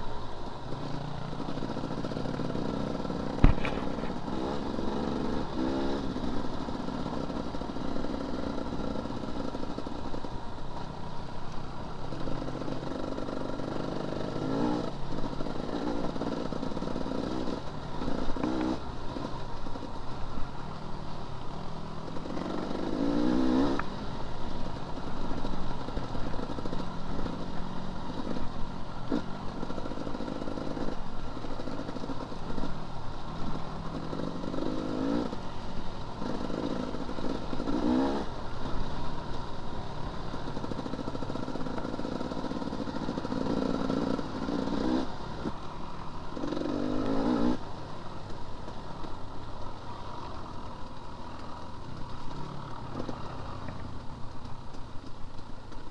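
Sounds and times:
dirt bike engine revving: 0:00.8 - 0:09.8, 0:12.2 - 0:19.4, 0:22.1 - 0:23.9, 0:36.2 - 0:39.0, 0:39.9 - 0:45.6, 0:46.4 - 0:47.7.

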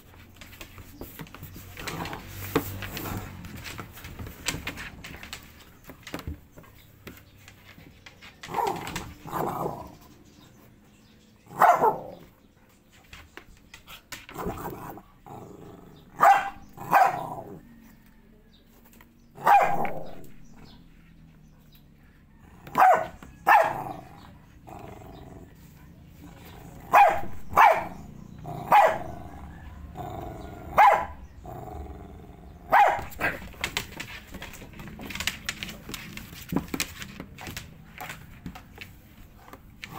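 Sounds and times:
dog barking: 0:11.5 - 0:12.3, 0:16.1 - 0:17.7, 0:19.4 - 0:20.8, 0:22.5 - 0:24.3, 0:26.8 - 0:31.4, 0:32.5 - 0:33.6.

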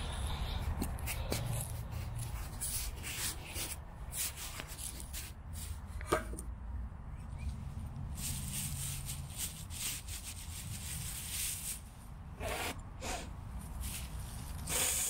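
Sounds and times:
soft rustles and clicks: 0:00.0 - 0:06.5.

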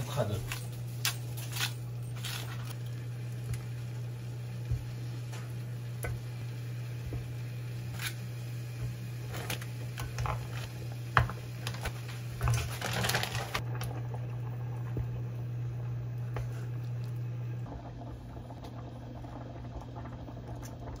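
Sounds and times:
steady low hum: 0:00.0 - 0:21.0
plastic bag crinkling: 0:00.2 - 0:02.8, 0:11.6 - 0:13.6.

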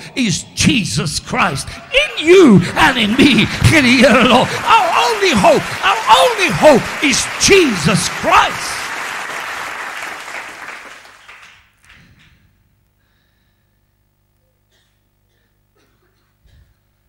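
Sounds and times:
congregation applauding: 0:01.9 - 0:12.2.

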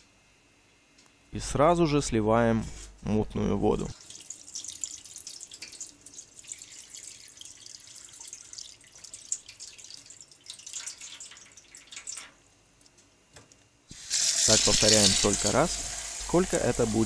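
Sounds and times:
water splashing into steel sink: 0:04.0 - 0:12.4, 0:13.9 - 0:17.0.

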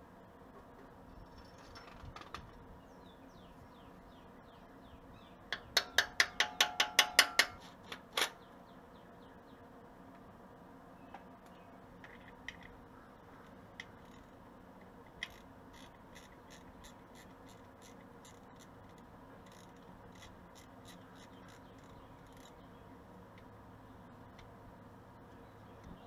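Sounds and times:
low steady hum: 0:00.0 - 0:26.0
wrench clicking on bolts: 0:05.6 - 0:07.6.

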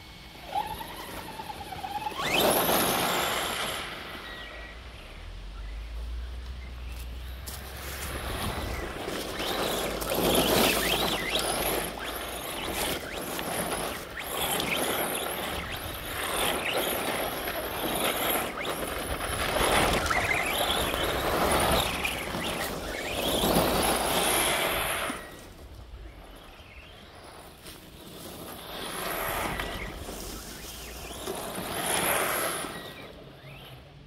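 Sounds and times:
electric motor whining: 0:00.0 - 0:04.8, 0:07.6 - 0:33.9
tyres spraying dirt: 0:07.1 - 0:25.6.

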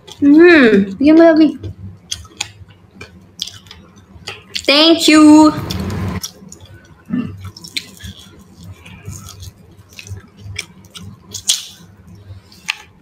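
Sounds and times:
person chewing: 0:01.8 - 0:04.7, 0:05.6 - 0:13.0.

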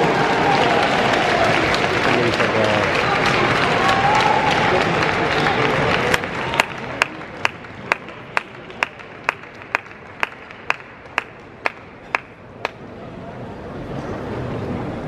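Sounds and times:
applause: 0:00.0 - 0:12.8
crowd murmur: 0:00.0 - 0:15.0.

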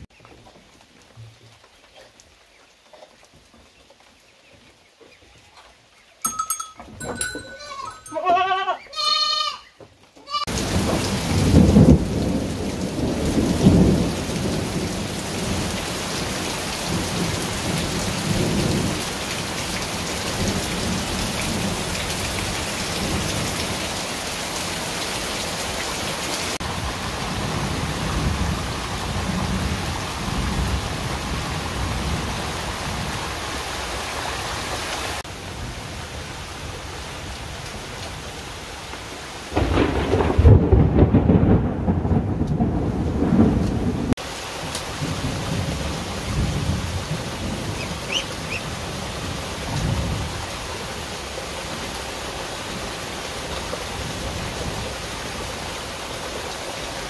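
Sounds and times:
goat bleating: 0:07.5 - 0:10.6
heavy rain pouring: 0:10.3 - 0:57.0
low rumbles of thunder: 0:10.6 - 0:16.3, 0:39.6 - 0:44.2.

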